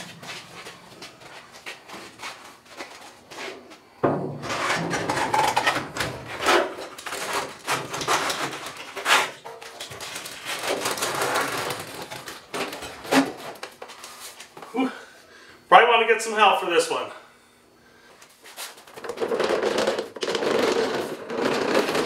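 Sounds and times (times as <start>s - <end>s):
cover scraping and rubbing: 4.4s - 14.4s, 18.4s - 22.0s.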